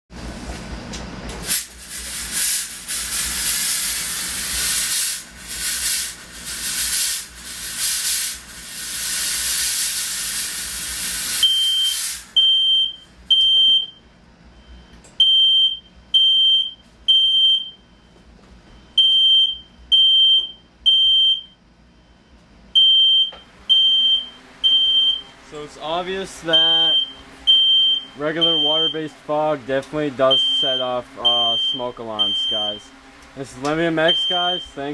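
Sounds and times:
fog machine hissing: 1.4 - 12.4
smoke alarm beeping: 11.4 - 18.2, 18.8 - 25.4, 26.5 - 29.2, 30.2 - 32.9, 34.0 - 34.9.

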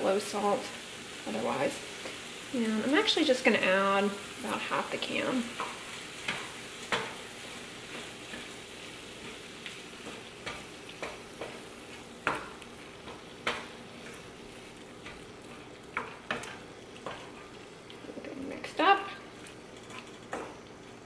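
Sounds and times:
faint sizzle: 0.0 - 21.0
wooden spoon scraping a pan: 4.5 - 21.0.

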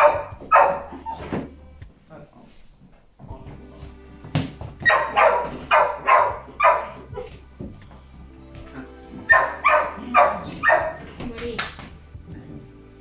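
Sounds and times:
dog barking: 0.0 - 1.2, 4.8 - 7.3, 9.3 - 11.1.

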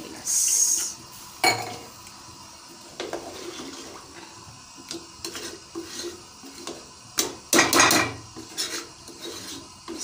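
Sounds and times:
liquid sloshing in a pot: 3.0 - 4.4.

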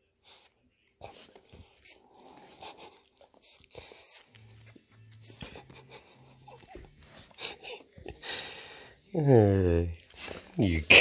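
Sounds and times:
monkey squeaking and chirping: 3.3 - 5.6.

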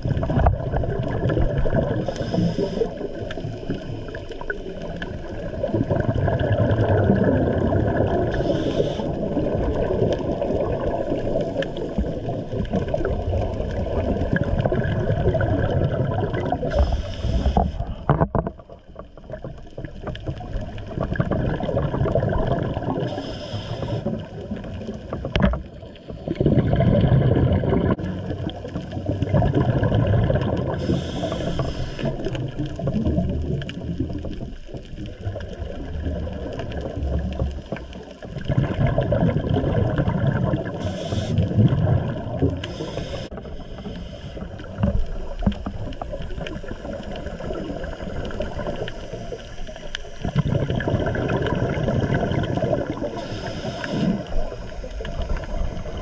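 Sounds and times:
bubbling exhaled air: 0.0 - 56.0
regulator inhale hiss: 2.0 - 3.7, 8.3 - 9.4, 16.6 - 18.0, 23.1 - 24.3, 30.7 - 32.4, 40.8 - 41.6, 42.6 - 44.8, 53.0 - 56.0.

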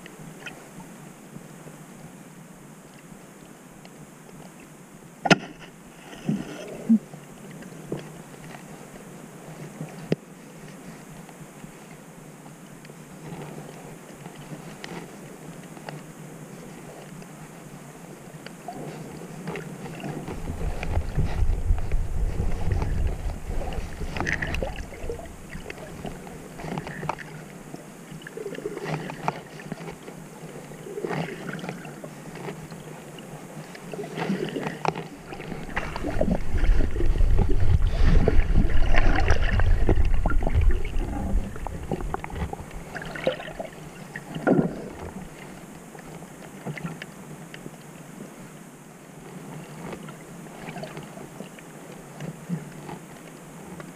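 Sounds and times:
underwater crackles and clicks: 2.9 - 48.3, 49.3 - 53.9
underwater water rushing: 5.2 - 8.6, 18.2 - 47.0.

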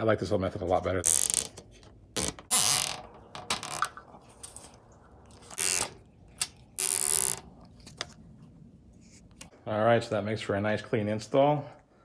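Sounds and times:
zip ties ratcheting tight: 1.1 - 1.5, 2.2 - 2.9, 5.6 - 6.0, 6.8 - 7.4.

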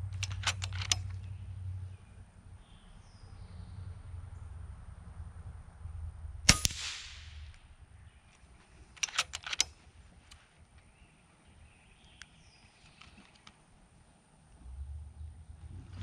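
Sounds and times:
rifle lever metallic clicks: 0.1 - 1.3, 8.9 - 10.4
air rifle shot crack: 6.4 - 7.7
pellet striking metal target: 6.5 - 7.5.

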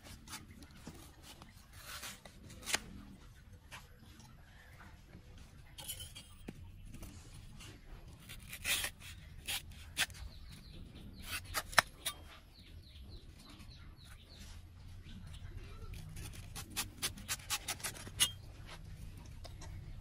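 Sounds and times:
knife cutting banana stems: 0.0 - 3.1, 11.2 - 12.3, 15.9 - 18.4.

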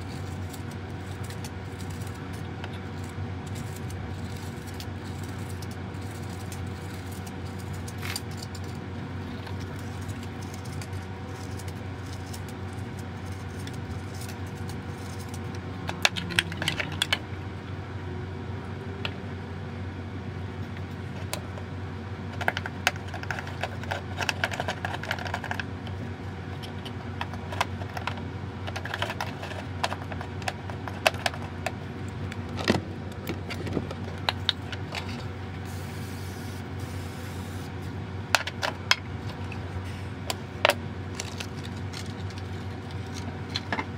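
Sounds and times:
clicks and crinkles of packaging: 0.0 - 8.8, 9.4 - 17.2, 22.4 - 25.7, 26.6 - 35.3, 41.1 - 43.9
steady low hum: 0.0 - 43.9.

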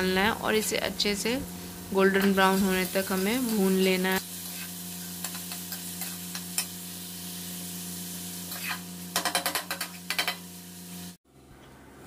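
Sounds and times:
onions sizzling in oil: 0.0 - 11.2
spatula scraping and tapping pan: 4.4 - 6.8, 8.5 - 10.5.

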